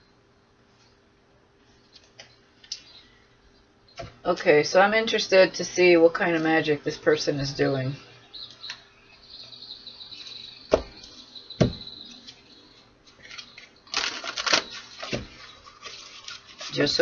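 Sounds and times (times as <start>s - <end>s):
cards being shuffled: 13.1s - 16.8s.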